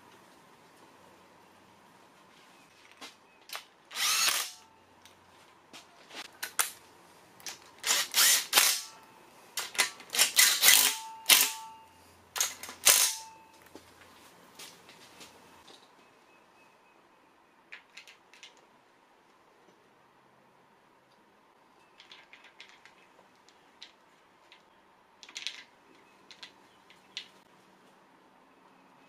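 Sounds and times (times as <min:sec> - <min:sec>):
cordless driver bursts: 0:03.9 - 0:04.6, 0:07.8 - 0:08.9, 0:10.1 - 0:11.6, 0:12.4 - 0:13.2.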